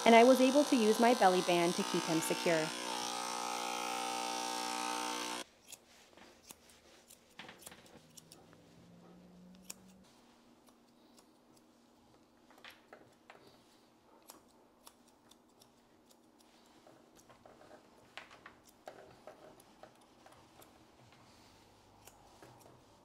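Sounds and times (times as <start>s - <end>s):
electric clippers humming: 0.0s - 5.4s
shears snipping fur: 0.0s - 23.0s.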